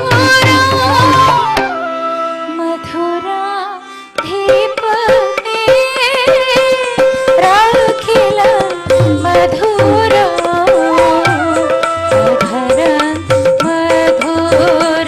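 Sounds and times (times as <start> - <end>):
wavering melody: 6.4 - 13.7.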